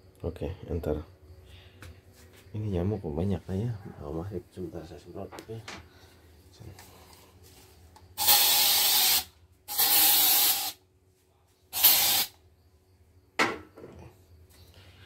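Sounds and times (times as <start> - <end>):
spray can hissing: 8.2 - 10.8, 11.7 - 12.4.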